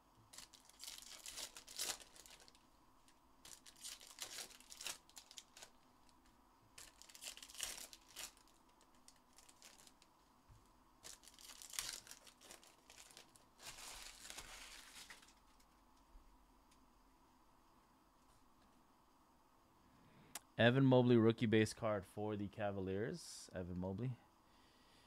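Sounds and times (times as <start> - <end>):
foil wrappers crinkling and tearing: 0.3 - 6.2, 6.8 - 10.1, 11.0 - 15.7.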